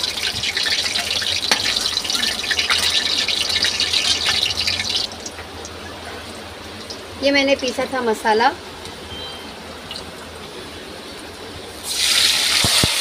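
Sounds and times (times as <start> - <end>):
hot oil sizzling in a pan: 0.0 - 5.9, 11.7 - 13.0.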